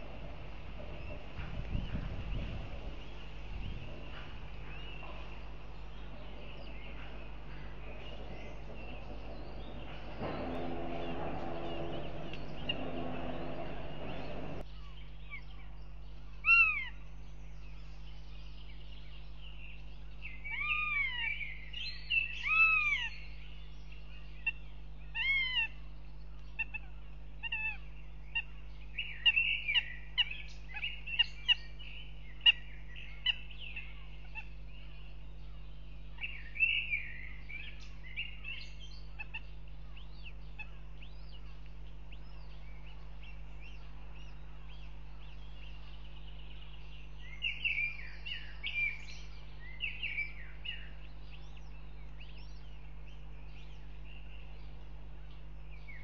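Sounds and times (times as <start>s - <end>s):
steady rushing noise: 0.0s - 14.6s
hawks wailing calls: 4.1s - 14.6s, 25.2s - 25.8s.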